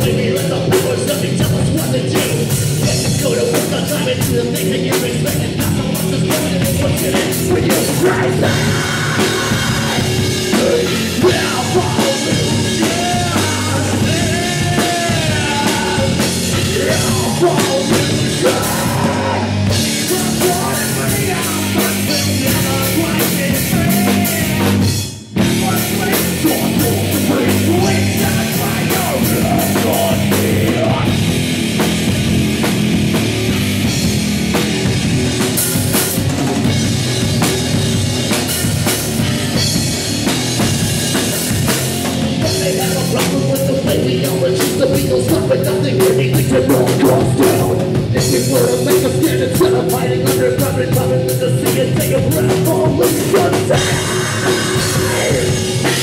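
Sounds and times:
person singing: 0:00.0 - 0:24.8, 0:25.4 - 0:31.2, 0:42.4 - 0:56.0
rock band playing: 0:00.0 - 0:56.0.

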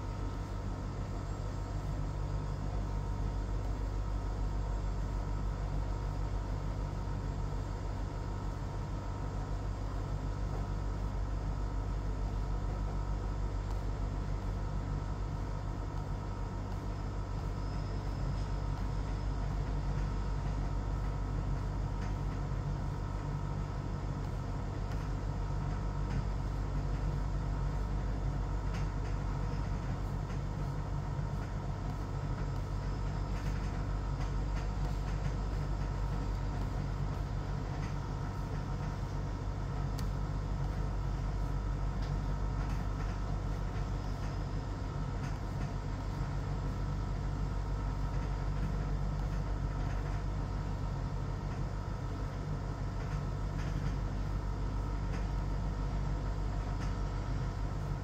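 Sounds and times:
mechanical hum and rumble: 0:00.0 - 0:58.0.

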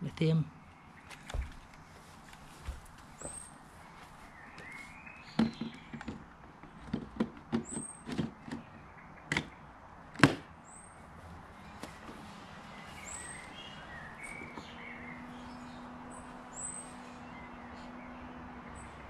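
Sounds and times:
birds chirping: 0:00.0 - 0:19.0
plastic clicks and knocks: 0:05.4 - 0:08.7.

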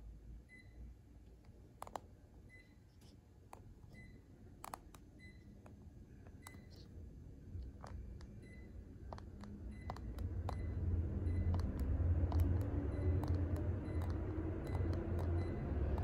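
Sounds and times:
remote control buttons clicking: 0:01.8 - 0:02.1, 0:03.5 - 0:06.9, 0:07.6 - 0:16.0
low rumble: 0:09.0 - 0:16.0.

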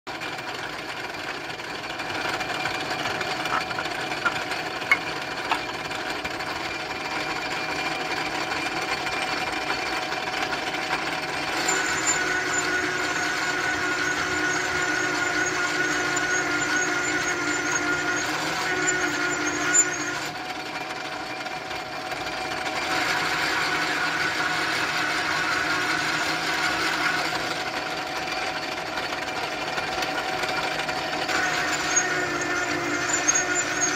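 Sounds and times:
metal lathe hum: 0:00.1 - 0:33.9
ringing cutting tone: 0:11.6 - 0:20.2.

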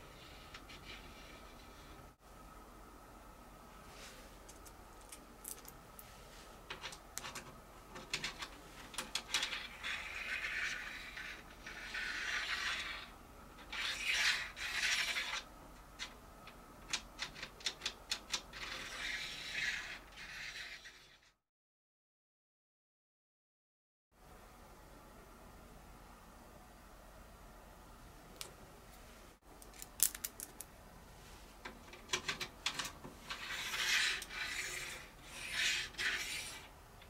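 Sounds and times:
bolt scraping in metal track: 0:31.9 - 0:36.7.

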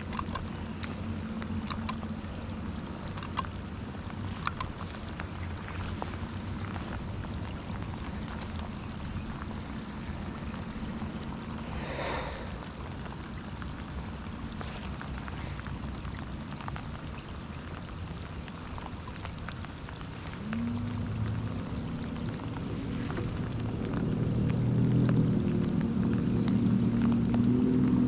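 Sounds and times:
rain falling on water: 0:00.0 - 0:28.0.

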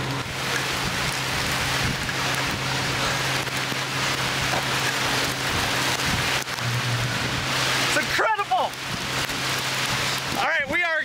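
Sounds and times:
rain falling steadily: 0:00.0 - 0:11.0
steady low hum: 0:06.4 - 0:07.9.

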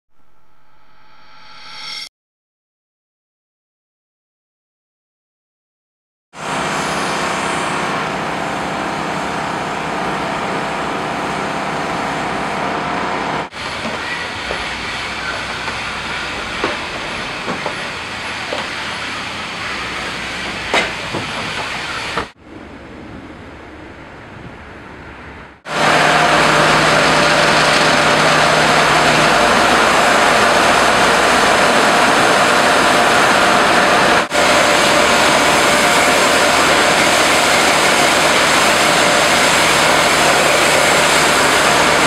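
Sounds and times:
car wash machinery: 0:06.4 - 0:42.0
high-pressure water spray: 0:13.6 - 0:22.4, 0:25.7 - 0:42.0.

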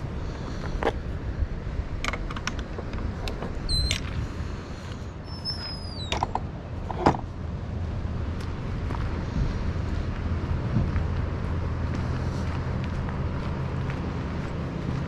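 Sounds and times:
low wind rumble: 0:00.0 - 0:15.0
high thin whistles: 0:05.3 - 0:06.2
footsteps on path: 0:06.7 - 0:15.0.

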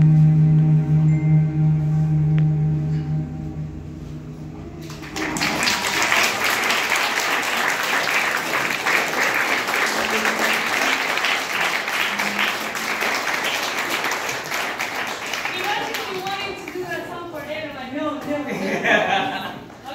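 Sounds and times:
audience applause: 0:04.8 - 0:17.0.

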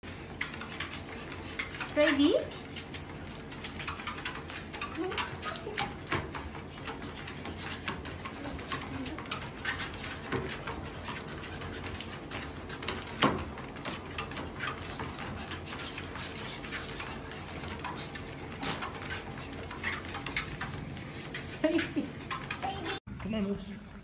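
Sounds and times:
dog paws tapping: 0:00.0 - 0:23.4
treadmill humming: 0:00.0 - 0:24.0
dog snort: 0:18.6 - 0:19.0.

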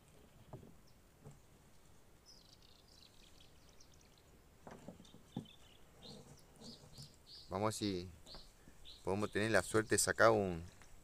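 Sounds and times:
faint bird chirps: 0:01.7 - 0:04.4, 0:05.0 - 0:09.6.

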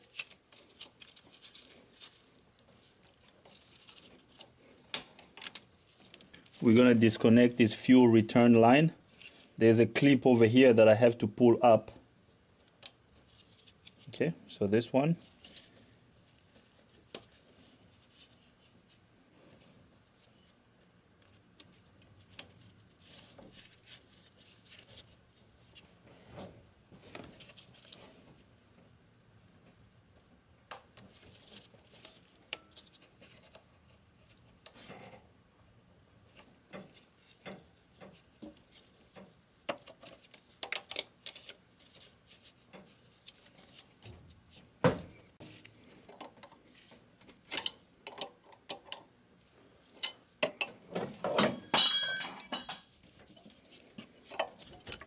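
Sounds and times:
hands handling engine parts: 0:49.9 - 0:55.0.

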